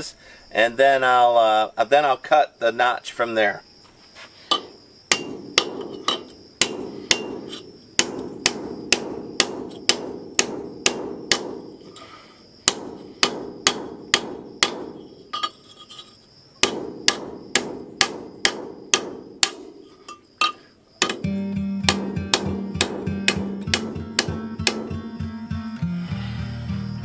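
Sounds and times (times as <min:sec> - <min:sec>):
hammer striking steel tubing: 0:04.5 - 0:11.8, 0:12.6 - 0:15.6, 0:16.6 - 0:25.1.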